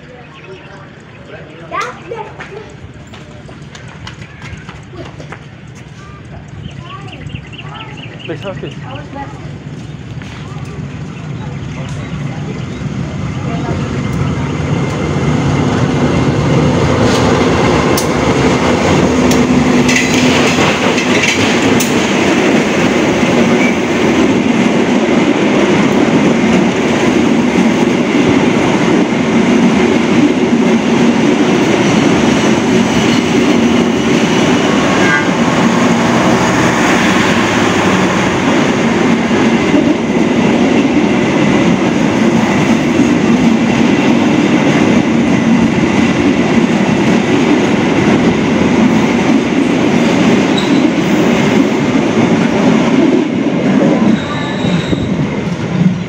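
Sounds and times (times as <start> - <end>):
diesel locomotive passing: 0.0 - 56.0
train wheels on rails: 0.0 - 56.0.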